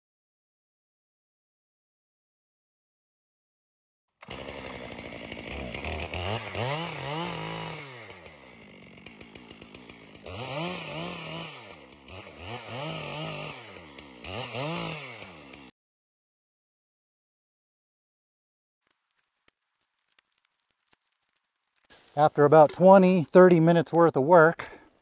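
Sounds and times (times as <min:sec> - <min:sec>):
chainsaw cutting and revving: 0:04.2 - 0:15.7.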